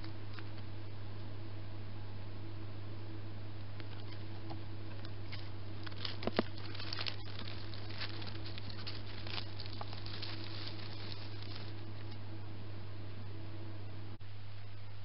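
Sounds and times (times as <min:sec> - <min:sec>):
hedgehog rustling in dry leaves: 0:05.3 - 0:12.1.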